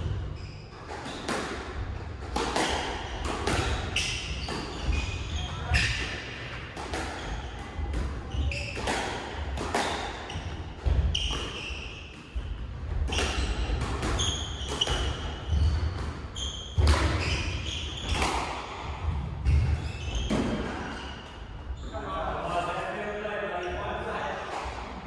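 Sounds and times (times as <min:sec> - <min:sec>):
squash ball smacking rackets and walls: 0:00.0 - 0:21.4
shoe squeaks on wooden floor: 0:03.6 - 0:06.0, 0:08.3 - 0:08.9, 0:10.3 - 0:12.1, 0:13.1 - 0:18.3, 0:19.4 - 0:22.0.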